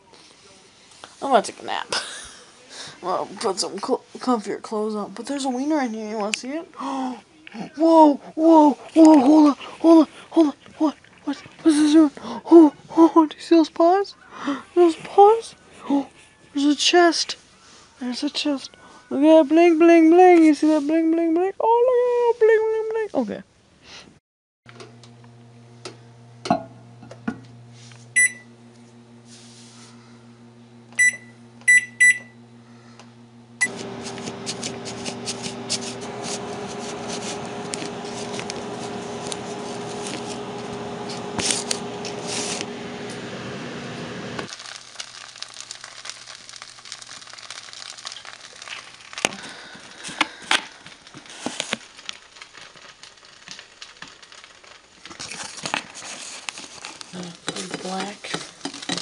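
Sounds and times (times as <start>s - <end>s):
microwave oven humming: 24.7s - 50.9s
keypad beeps: 31.0s - 32.3s.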